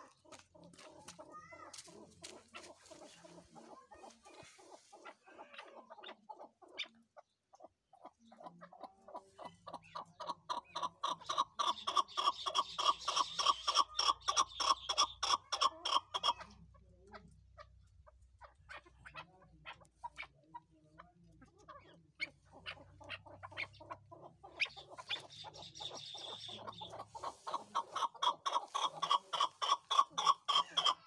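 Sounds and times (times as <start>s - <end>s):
partridges calling: 9.4s - 16.6s, 21.4s - 31.0s.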